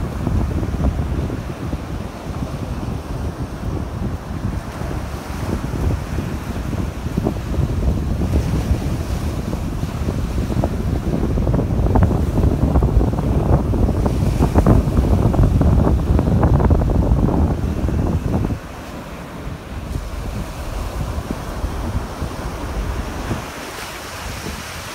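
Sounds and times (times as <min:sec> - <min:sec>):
waves breaking on beach: 0:00.0 - 0:24.9
wind buffeting microphone: 0:00.0 - 0:24.9.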